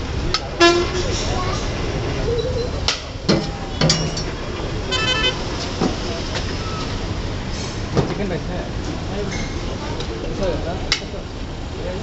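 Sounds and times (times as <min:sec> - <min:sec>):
street traffic rumble: 0:00.0 - 0:12.0
stuttering car horn toot: 0:00.6 - 0:01.0, 0:04.8 - 0:05.5.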